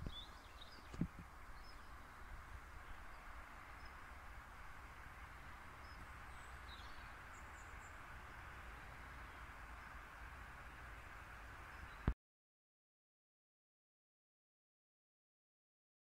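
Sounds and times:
faint bird chirps: 0:00.0 - 0:04.2, 0:05.3 - 0:10.1
steady hiss: 0:00.0 - 0:12.2.

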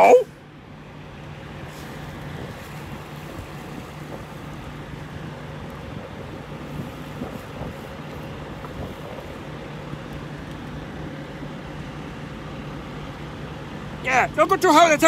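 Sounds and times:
truck engine idling: 0:00.0 - 0:15.0
wind noise on microphone: 0:01.5 - 0:10.7.

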